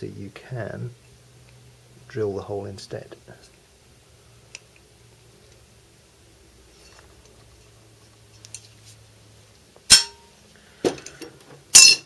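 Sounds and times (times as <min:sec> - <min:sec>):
metal clanks: 0:09.9 - 0:10.3, 0:10.9 - 0:12.0.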